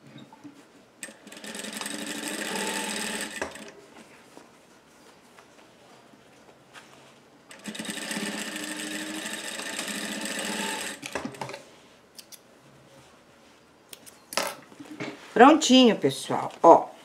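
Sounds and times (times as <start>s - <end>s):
sewing machine running: 1.0s - 3.7s, 7.5s - 11.6s.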